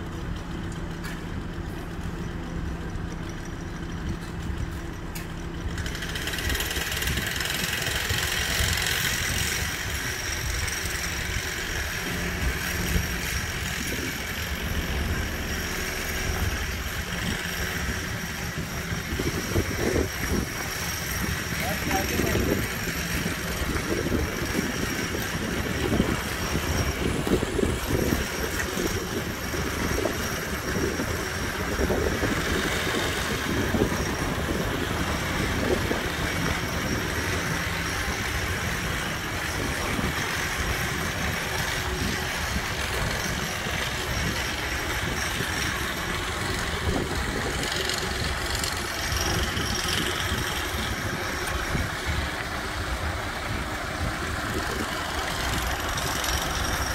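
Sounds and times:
diesel engine running: 0.0 - 56.9.

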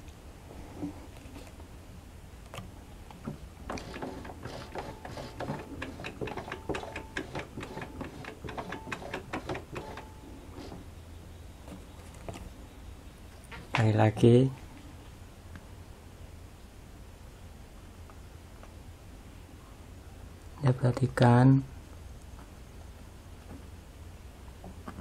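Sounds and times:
sewing machine clicking: 3.7 - 10.8.

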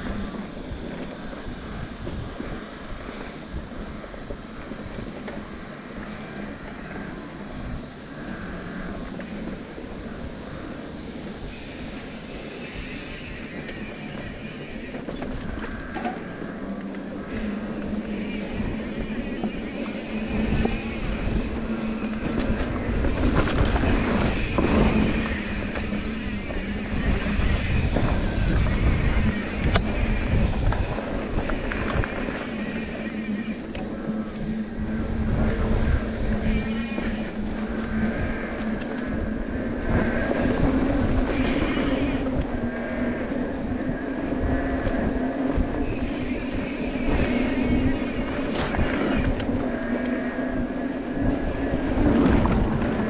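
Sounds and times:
mountain bike rattling on rocky trail: 11.5 - 39.3.

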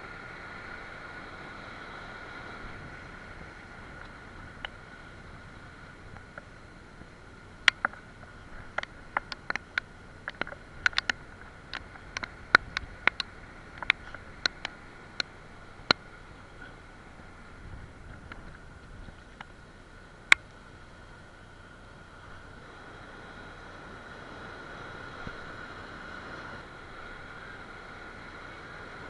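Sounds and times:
sharp irregular clicks and knocks: 7.6 - 16.0.

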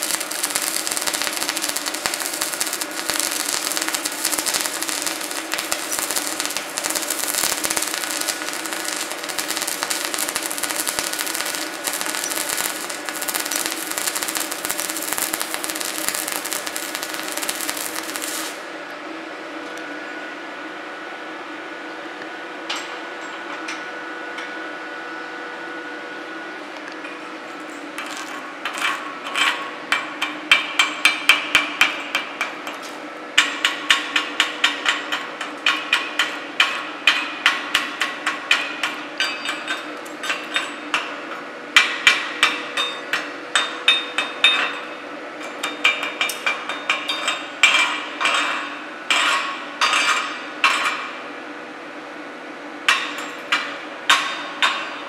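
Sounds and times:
chipping hammer striking steel: 0.0 - 18.6, 28.0 - 41.1
steady hum: 0.0 - 55.0.

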